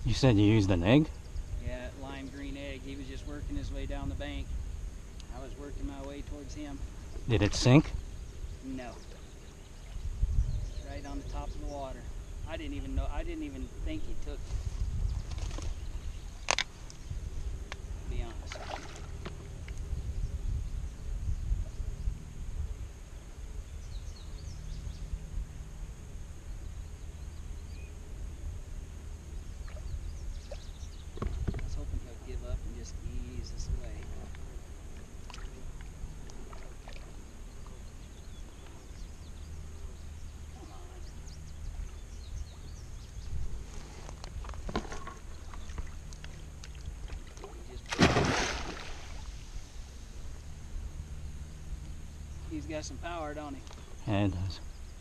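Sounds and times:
wind rumble on microphone: 0.0s - 50.9s
thin steady high whine: 0.0s - 55.0s
fish thrashing and splashing: 47.9s - 49.3s.

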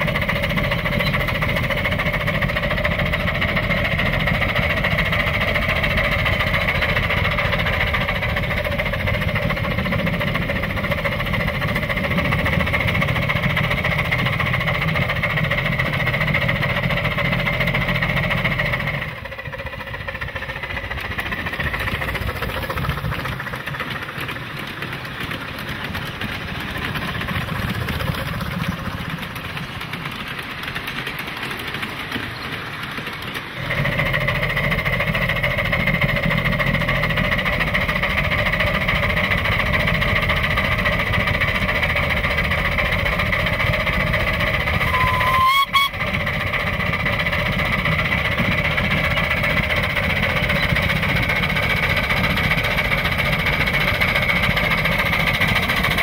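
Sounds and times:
steam locomotive running: 0.0s - 56.0s
train rolling across wooden trestle: 0.0s - 56.0s.

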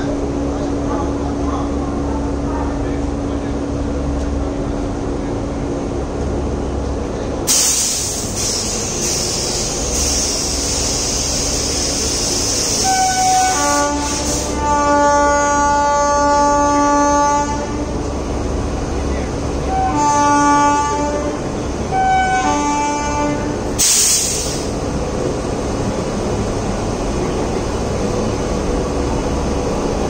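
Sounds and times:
electric locomotive humming: 0.0s - 30.0s
loud hiss: 7.5s - 14.6s, 23.8s - 24.8s
locomotive horn blast: 12.7s - 18.1s, 19.6s - 24.7s.

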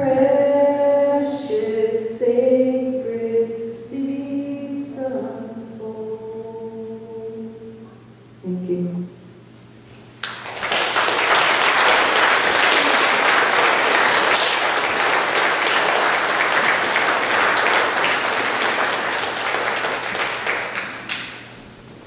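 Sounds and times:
audience applauding: 10.2s - 21.6s.

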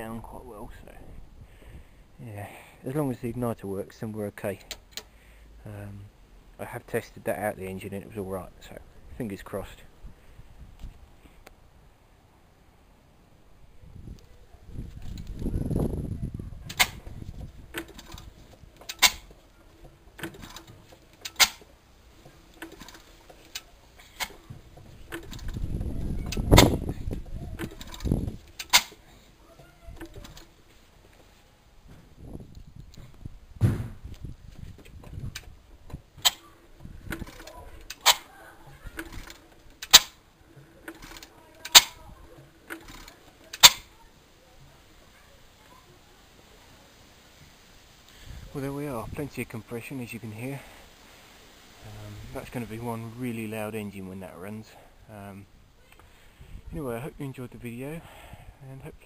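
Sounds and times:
engine turned over by hand clicking: 16.7s - 29.0s
engine mechanism metallic clicks: 17.7s - 21.7s, 38.9s - 40.2s, 40.8s - 41.9s.

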